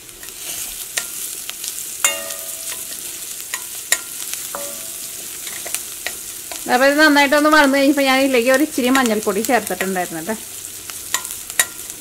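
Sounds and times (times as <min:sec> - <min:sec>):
vegetables sizzling in oil: 0:00.0 - 0:12.0
metal ladle clinking on pan: 0:02.0 - 0:06.6, 0:11.1 - 0:11.9.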